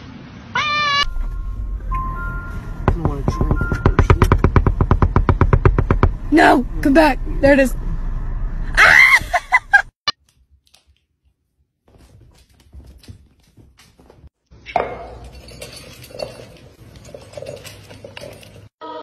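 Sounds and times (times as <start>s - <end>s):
kibble clinking against bowl: 14.7s - 18.7s.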